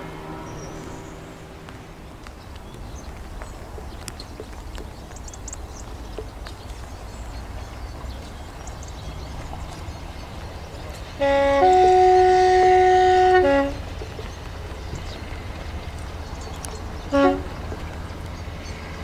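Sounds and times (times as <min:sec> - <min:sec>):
low rumble: 0:00.0 - 0:06.4
faint ticks: 0:01.6 - 0:11.8, 0:13.2 - 0:19.0.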